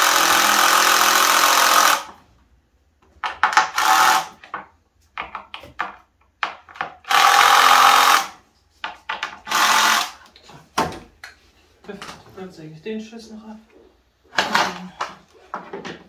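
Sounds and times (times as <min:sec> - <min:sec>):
cordless drill driving screws: 0:00.0 - 0:02.1, 0:09.5 - 0:10.2.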